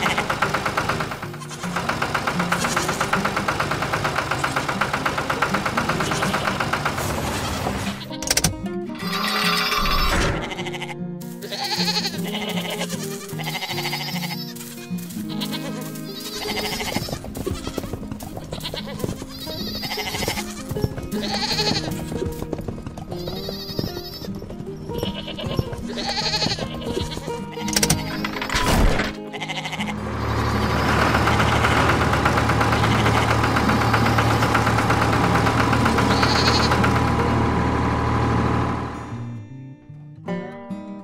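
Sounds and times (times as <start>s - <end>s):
cheerful background music: 7.9s - 34.4s
cartoon sheep bleating: 9.0s - 17.0s, 21.2s - 21.9s, 25.1s - 28.4s, 29.2s - 30.0s, 36.1s - 36.8s.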